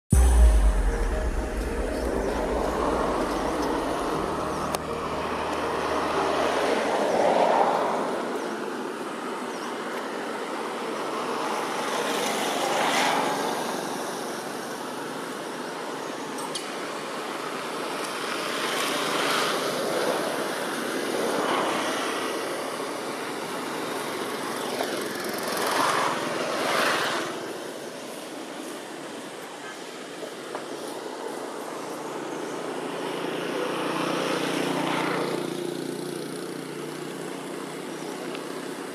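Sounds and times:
road traffic passing: 0.1s - 14.8s, 32.1s - 38.9s.

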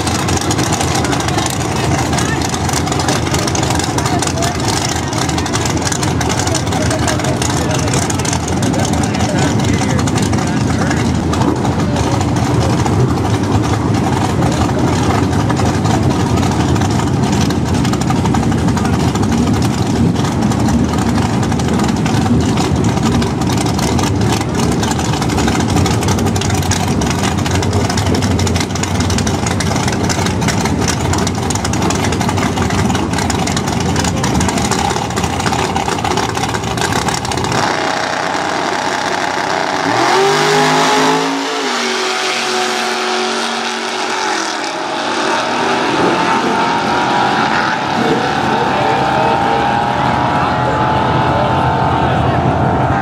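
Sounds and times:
race car engines idling: 0.0s - 53.0s.

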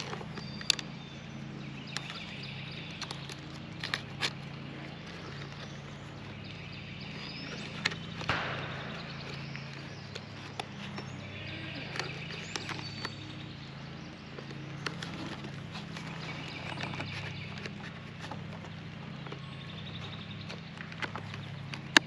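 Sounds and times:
steady low hum: 0.0s - 22.0s
plastic parts clicking and tapping: 1.9s - 5.7s.

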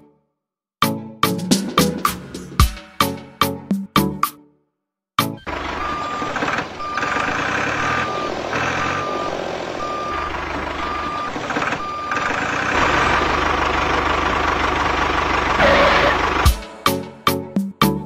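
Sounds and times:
vehicle engine running: 5.4s - 16.6s
reversing alarm beeping: 5.5s - 13.6s.

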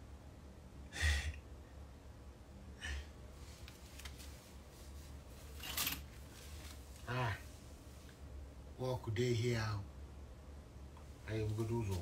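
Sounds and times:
clothing rustling: 3.4s - 8.3s, 11.1s - 12.0s.

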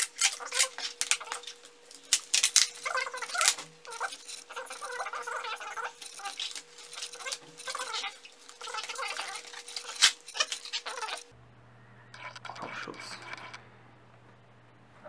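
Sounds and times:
plastic packaging crinkling: 0.0s - 11.3s
scissors cutting: 0.0s - 11.3s.

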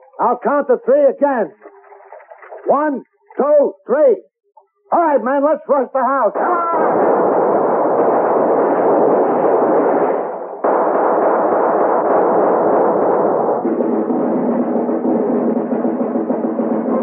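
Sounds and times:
battle sound effects din: 6.3s - 17.0s.

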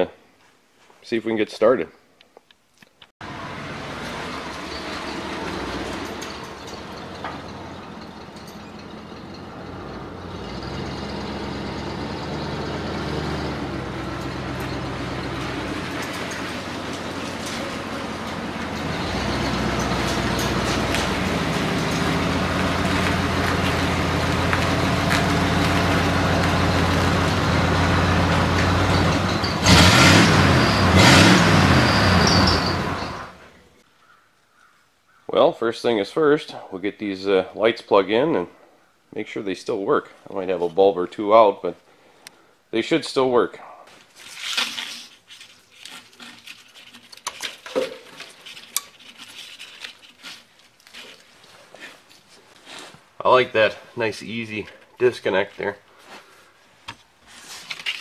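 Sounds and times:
wires rustling: 2.7s - 33.5s, 43.9s - 58.0s
pickup truck engine revving: 3.2s - 33.4s
plastic connectors rattling: 44.4s - 51.4s.

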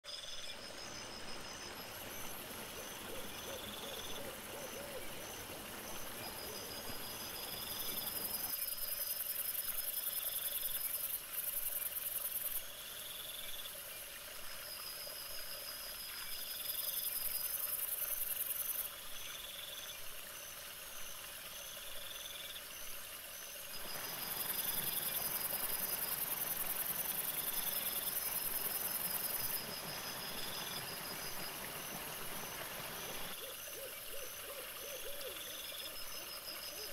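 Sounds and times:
crickets trilling: 0.1s - 13.8s, 21.5s - 36.9s
steady hiss: 0.5s - 36.9s
short cricket chirps: 21.6s - 36.9s.

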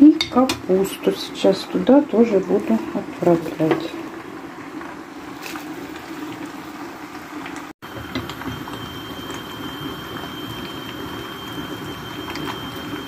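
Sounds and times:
soup simmering and bubbling: 1.7s - 13.0s
faint steady high tone: 7.9s - 13.0s.

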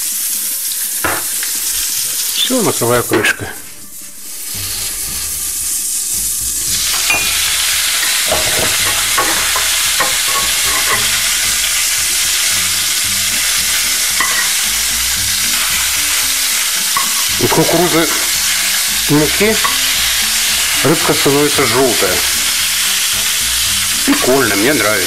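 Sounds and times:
fish sizzling in hot oil: 0.0s - 25.0s
metal spatula scraping pan: 6.7s - 11.9s, 12.6s - 24.8s.

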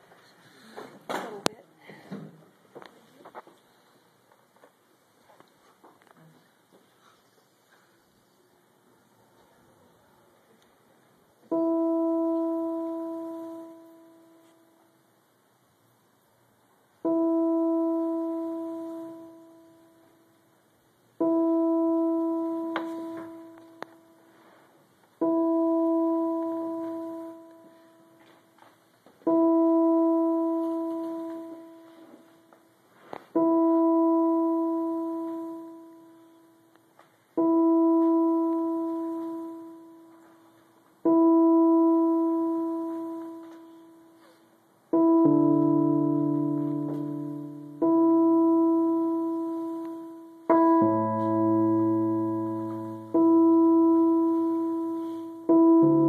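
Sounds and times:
electronic keyboard notes: 11.4s - 15.0s, 17.0s - 20.6s, 21.2s - 24.6s, 25.2s - 56.0s.

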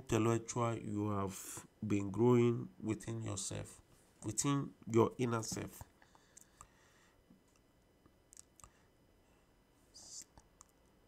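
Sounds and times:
faint mouth clicks: 8.3s - 8.8s.

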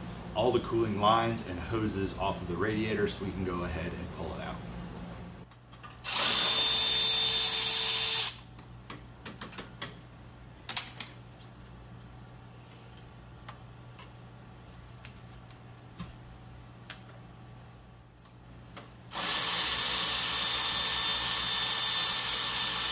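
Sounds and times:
electric ratchet whining: 6.0s - 8.4s, 19.1s - 22.9s.

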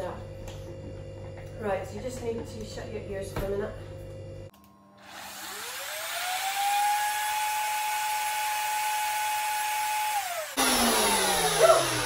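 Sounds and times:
blender grinding seeds: 5.0s - 12.0s.

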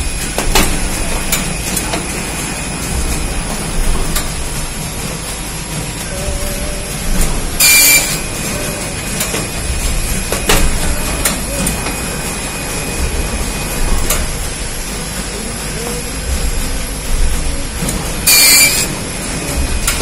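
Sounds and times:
binding machine running: 0.0s - 20.0s
sharp machine clicks: 17.8s - 19.0s.

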